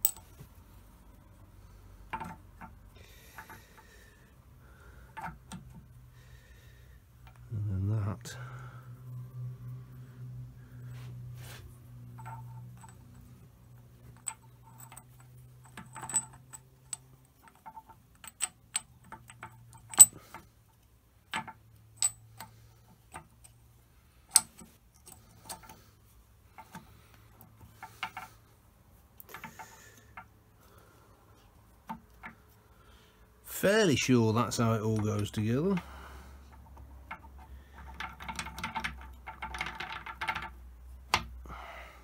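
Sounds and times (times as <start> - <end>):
metal gear parts clinking: 0.0 - 0.3.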